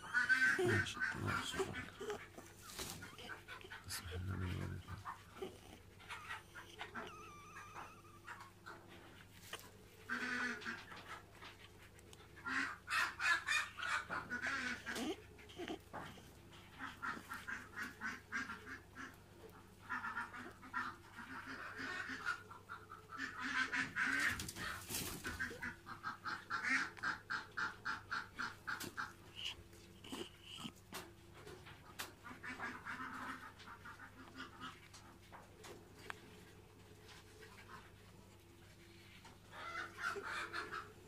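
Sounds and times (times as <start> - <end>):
squeaky animal calls: 2.8 - 8.5.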